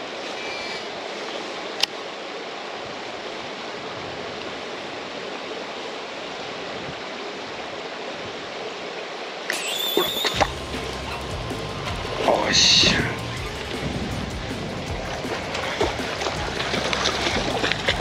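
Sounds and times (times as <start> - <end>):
strong wind rushing: 10.4 - 18.0.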